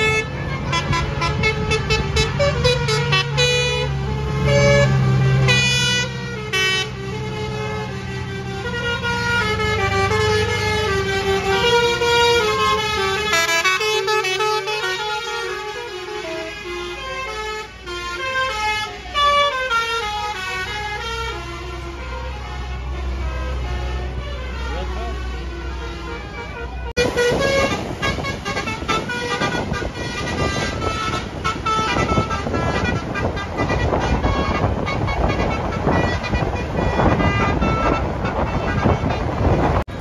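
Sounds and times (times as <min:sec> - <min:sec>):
heavy vehicle engines rumbling: 0:00.0 - 0:40.0
multi-tone air horn tune: 0:00.0 - 0:40.0.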